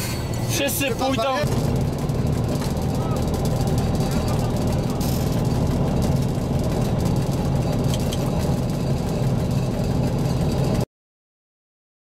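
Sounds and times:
diesel locomotive engine running: 0:00.0 - 0:10.9.

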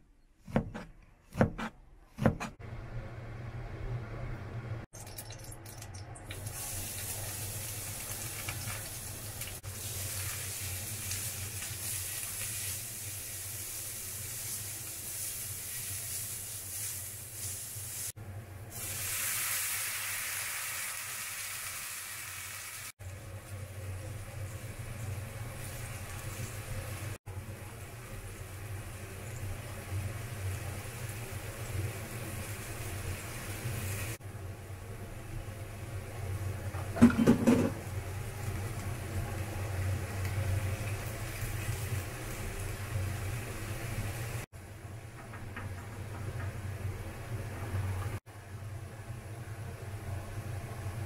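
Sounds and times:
food sizzling in oil: 0:06.2 - 0:23.0, 0:27.8 - 0:34.2, 0:37.2 - 0:44.5
liquid hissing in hot pan: 0:06.4 - 0:23.0.

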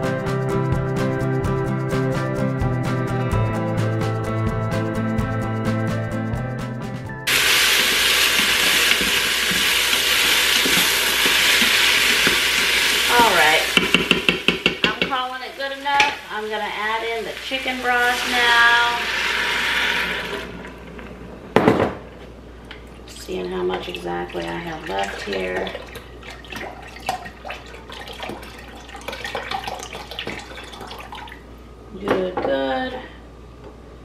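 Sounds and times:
food sizzling in a pot: 0:07.3 - 0:20.6.

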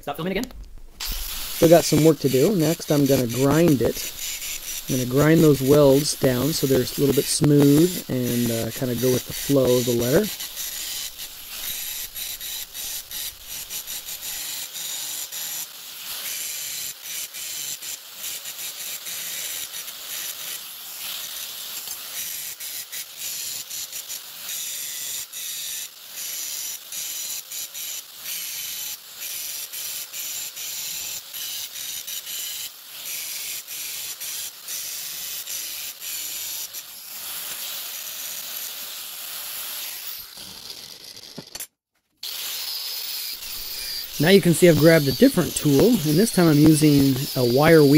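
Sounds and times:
angle grinder grinding metal: 0:01.0 - 0:47.9.

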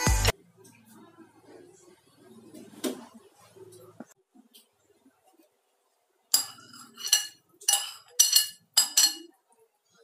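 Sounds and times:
metal spoon clinking on saucepan: 0:06.3 - 0:09.5.

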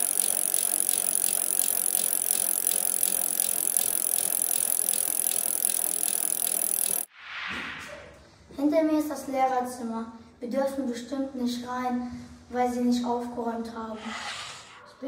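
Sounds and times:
whirring rattling hiss with ticks: 0:00.0 - 0:07.1.

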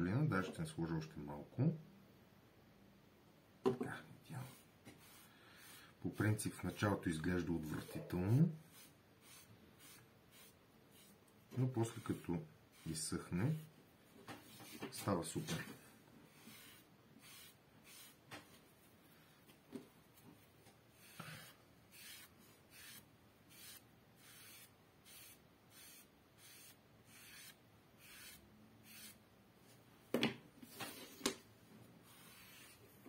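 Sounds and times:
sponge wiping leather: 0:04.4 - 0:06.8.

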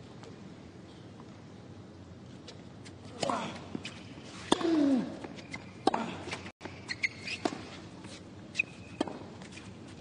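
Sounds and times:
racket striking ball: 0:04.5 - 0:04.9, 0:08.9 - 0:09.4
short grunt: 0:04.5 - 0:05.2
sneakers squeaking on court: 0:05.2 - 0:09.9
ball bouncing: 0:09.0 - 0:09.4.

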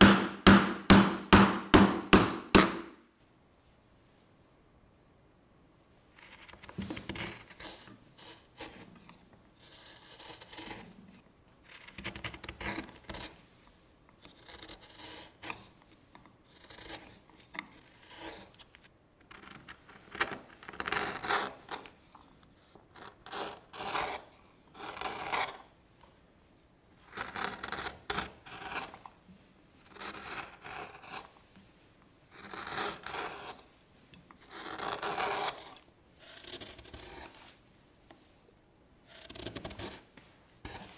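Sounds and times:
gouge scraping wood: 0:06.2 - 0:13.5, 0:14.2 - 0:15.9, 0:16.5 - 0:18.7, 0:19.3 - 0:22.0, 0:23.0 - 0:25.7, 0:27.1 - 0:29.1, 0:29.8 - 0:31.5, 0:32.3 - 0:33.7, 0:34.4 - 0:37.6, 0:39.1 - 0:40.9.

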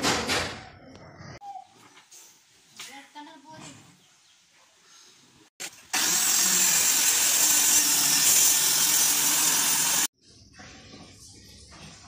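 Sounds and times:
circular saw cutting plywood: 0:05.9 - 0:10.1.

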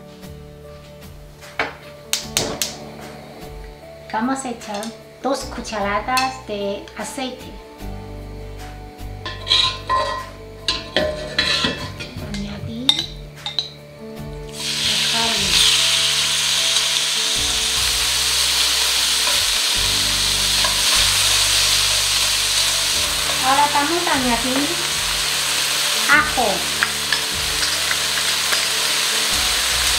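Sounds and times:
meat sizzling in hot oil: 0:14.5 - 0:29.9.

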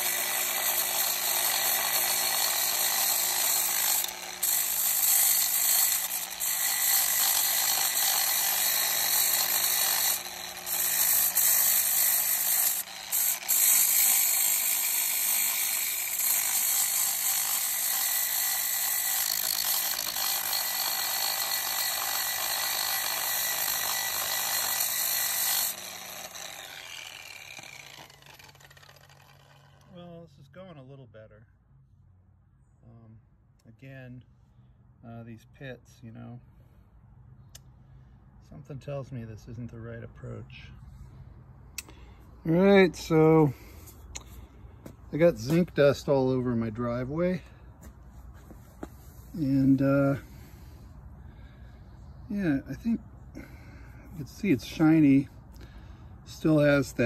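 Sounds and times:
angle grinder grinding metal: 0:00.0 - 0:29.9
grinder spinning down: 0:00.0 - 0:29.9.

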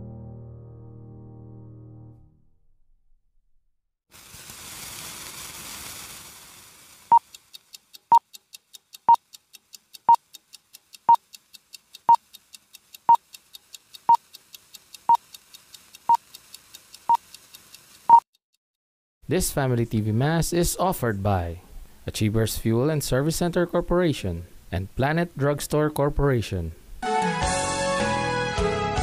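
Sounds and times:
hissing noise: 0:04.1 - 0:07.8
faint clicking: 0:05.8 - 0:18.2.

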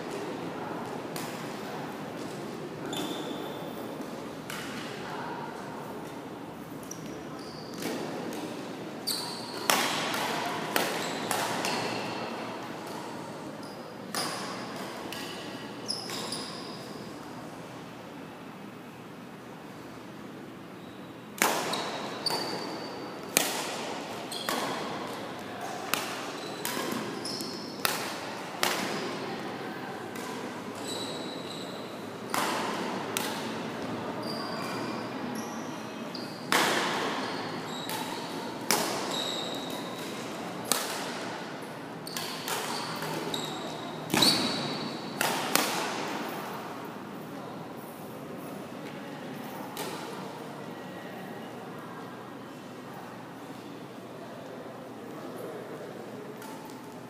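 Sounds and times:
shoes squeaking on court floor: 0:02.8 - 0:03.8, 0:06.8 - 0:08.0, 0:09.0 - 0:10.1, 0:10.8 - 0:12.3, 0:15.2 - 0:17.0, 0:21.6 - 0:23.1, 0:24.2 - 0:25.3, 0:26.2 - 0:27.9, 0:30.8 - 0:31.9, 0:34.2 - 0:36.5, 0:37.1 - 0:38.3, 0:38.9 - 0:40.2, 0:42.0 - 0:45.2.

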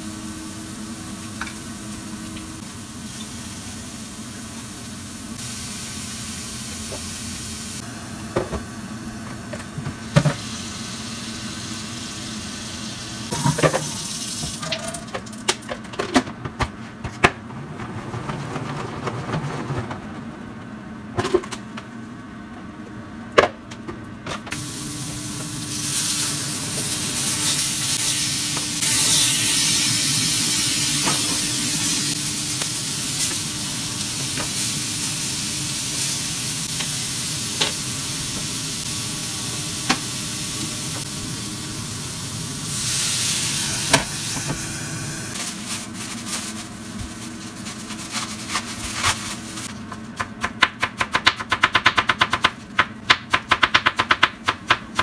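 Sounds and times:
meat sizzling in frying pan: 0:10.4 - 0:15.0, 0:24.6 - 0:41.5.

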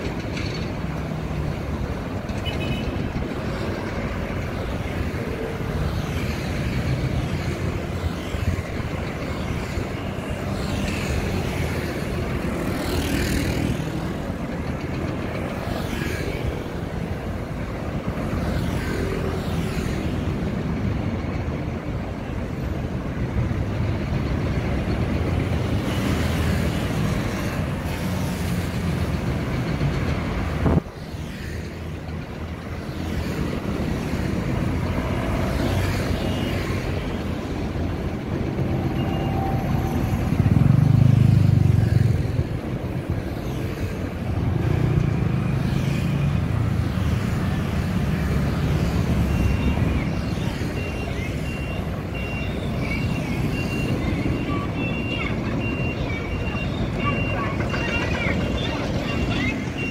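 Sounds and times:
steady traffic rumble: 0:00.0 - 0:59.9.

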